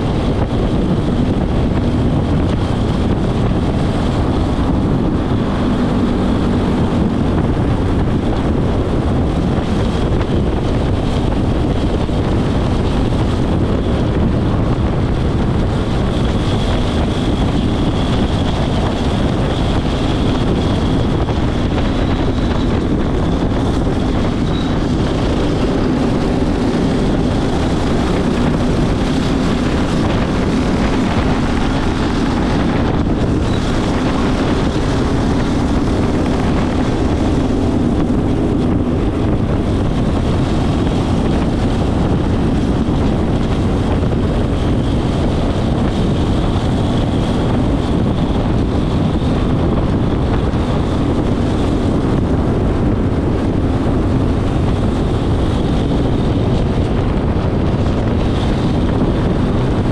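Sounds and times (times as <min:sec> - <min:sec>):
go-kart engine running hard: 0:00.0 - 0:59.9
wind noise on microphone: 0:00.0 - 0:59.9.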